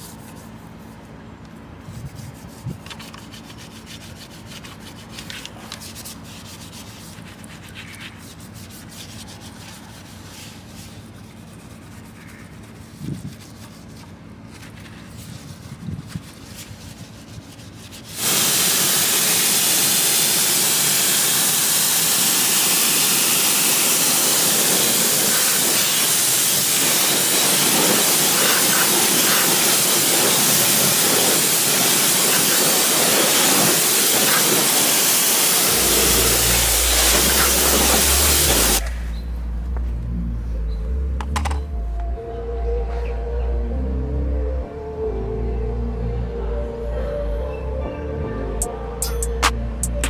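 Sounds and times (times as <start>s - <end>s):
low steady hum: 0.0s - 18.2s, 35.7s - 50.0s
pressure washer spraying: 18.0s - 38.9s.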